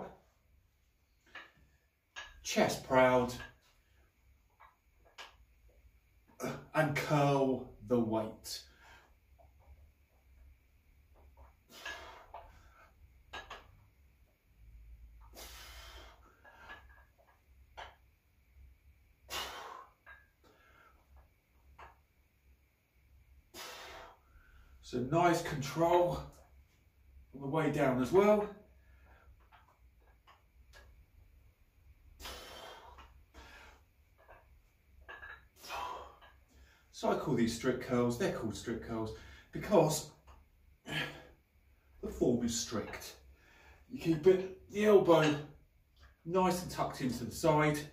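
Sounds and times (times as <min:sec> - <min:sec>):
dumbbells ticking: 0:01.2 - 0:06.5, 0:09.2 - 0:22.2, 0:28.0 - 0:37.0
man breathing hard: 0:15.3 - 0:16.8, 0:32.2 - 0:33.8
person exhaling: 0:32.2 - 0:33.8.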